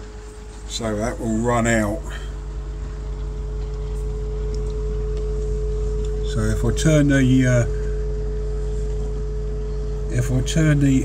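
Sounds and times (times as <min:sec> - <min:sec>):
pond filter machinery humming: 0:00.0 - 0:11.0.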